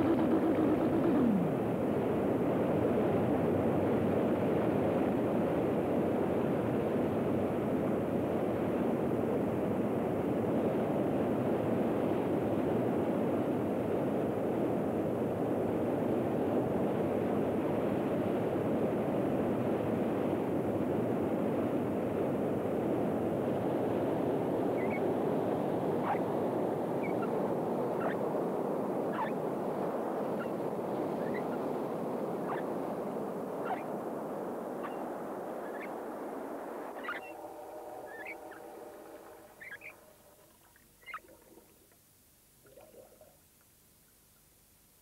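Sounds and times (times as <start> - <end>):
steady rushing noise: 0.0 - 2.3, 29.5 - 41.7
short high squeaks: 32.4 - 32.7, 33.6 - 33.9, 34.8 - 36.0, 36.9 - 40.4.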